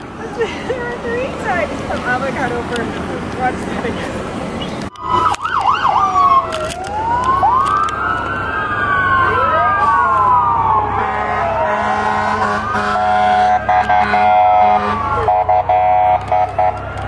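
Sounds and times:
emergency sirens wailing: 4.4s - 17.0s
steady blaring horn tone: 10.9s - 17.0s.

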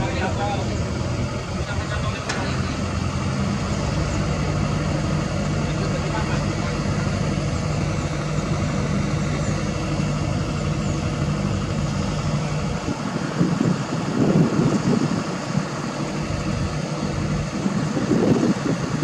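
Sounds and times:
excavator diesel engine idling: 0.0s - 19.0s.

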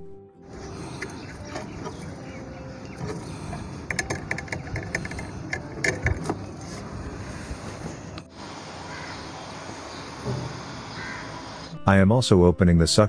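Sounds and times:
tube cutter clicking and scraping: 3.0s - 6.8s
steady background hiss: 6.8s - 11.7s.

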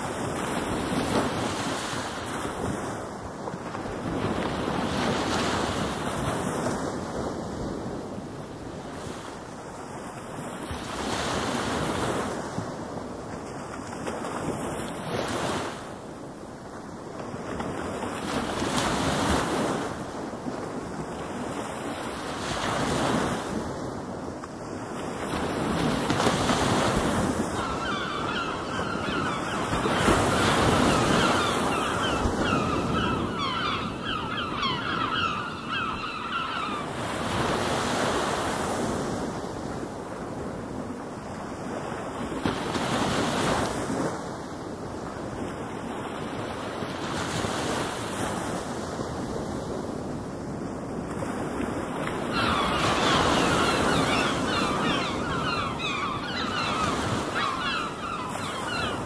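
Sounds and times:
ocean waves breaking: 0.0s - 59.0s
high wavering calls: 27.6s - 36.9s, 52.4s - 59.0s.

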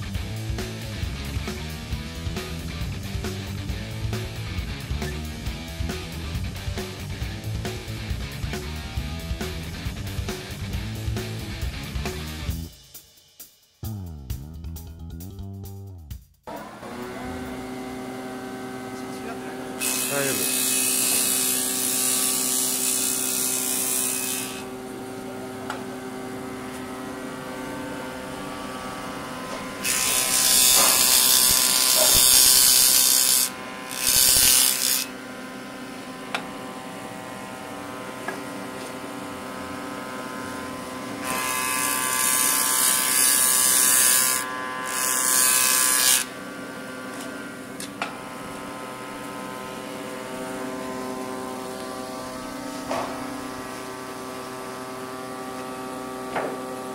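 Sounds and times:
machine motor hum: 16.5s - 20.0s
jointer planing a board: 16.6s - 56.9s.

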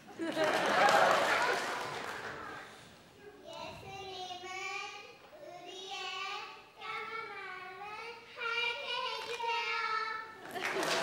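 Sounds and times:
child singing: 3.5s - 10.3s.

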